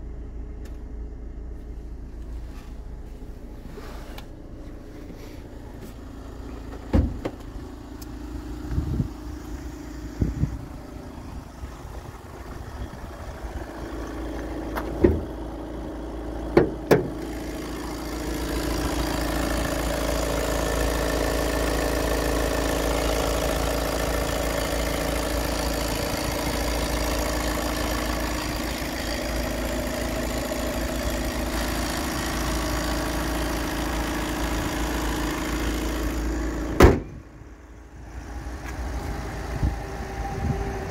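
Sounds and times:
diesel engine idling: 0.0 - 40.9
loud slam: 36.8 - 37.2.

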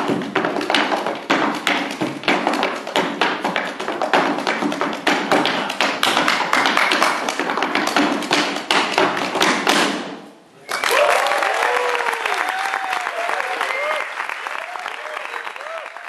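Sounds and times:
stomping on wooden stage: 0.0 - 10.3
hand claps and body slaps: 0.6 - 10.1
applause with cheering: 10.7 - 16.0.

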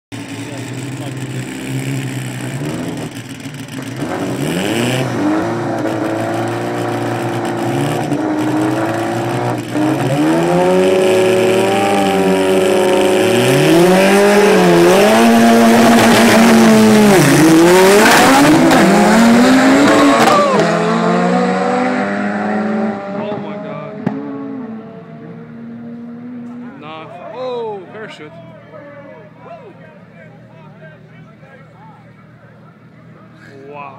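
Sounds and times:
drag racing cars revving: 0.1 - 27.2.

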